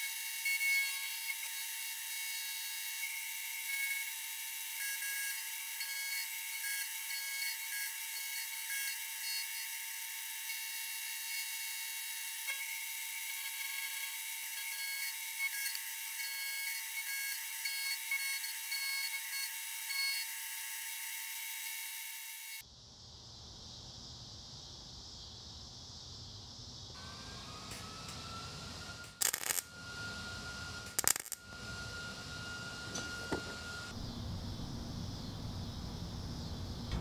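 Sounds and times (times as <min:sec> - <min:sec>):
milling machine cutting steel: 0:27.0 - 0:33.9.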